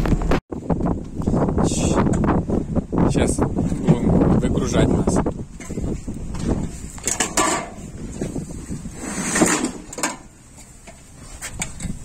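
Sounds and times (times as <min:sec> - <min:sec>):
shoes clanking on metal ladder: 0:05.6 - 0:08.4, 0:09.3 - 0:12.0.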